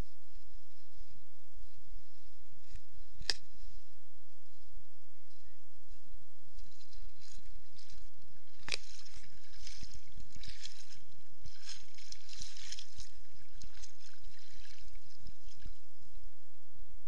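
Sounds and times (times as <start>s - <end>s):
seawater sloshing and splashing: 6.6s - 15.9s.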